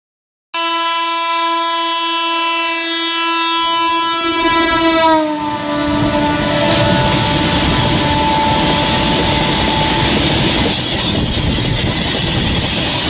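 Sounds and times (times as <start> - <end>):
locomotive horn blast: 0.6 - 10.7
train rumbling on rails: 4.2 - 13.0.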